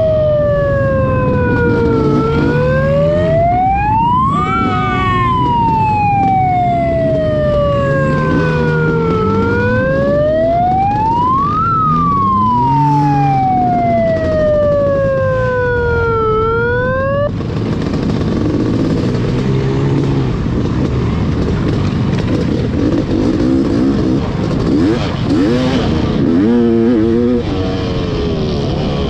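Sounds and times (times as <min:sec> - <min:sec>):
wailing siren: 0:00.0 - 0:17.4
engine noise: 0:00.0 - 0:29.0.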